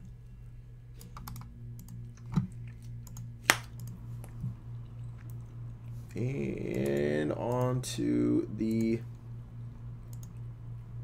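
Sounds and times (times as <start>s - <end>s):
steady low hum: 0.0s - 11.0s
keyboard and mouse clicks: 1.0s - 4.0s, 10.1s - 10.4s.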